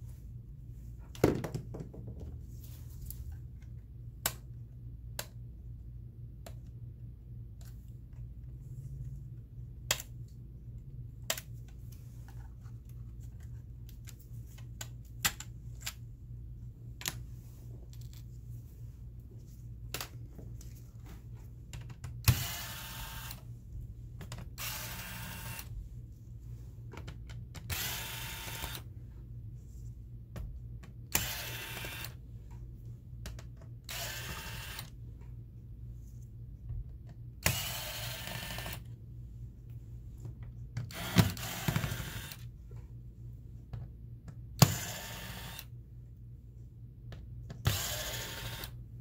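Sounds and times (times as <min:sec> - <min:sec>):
electric screwdriver running: 0:22.3 - 0:23.4, 0:24.6 - 0:25.7, 0:27.7 - 0:28.8, 0:31.1 - 0:32.2, 0:33.9 - 0:34.9, 0:40.9 - 0:42.4, 0:44.6 - 0:45.7, 0:47.7 - 0:48.8.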